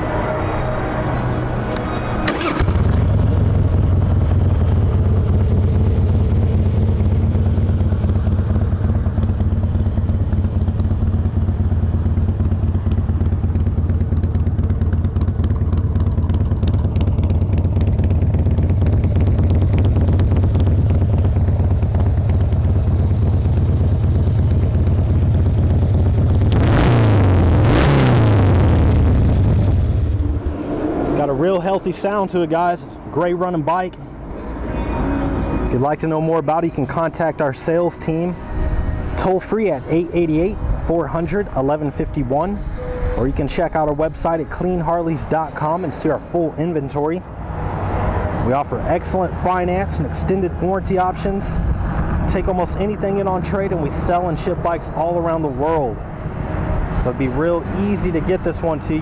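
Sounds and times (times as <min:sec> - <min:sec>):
motorcycle engine starting: 0:00.2 - 0:32.4
motorcycle throttle blips: 0:01.7 - 0:30.5
motorcycle engine idling: 0:02.3 - 0:26.5.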